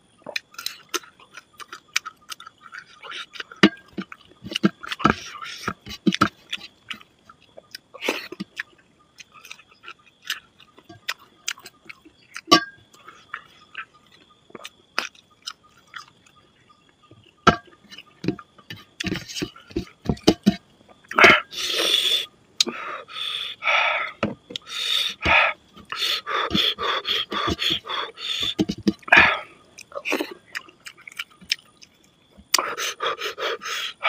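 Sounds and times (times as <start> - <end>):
person chewing food: 0.2 - 34.0
loud slurps: 24.6 - 30.3.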